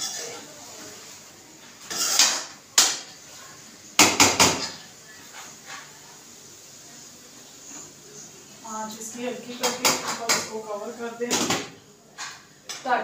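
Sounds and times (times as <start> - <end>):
metal spoon scraping a pan: 0.0 - 0.9, 1.8 - 2.6.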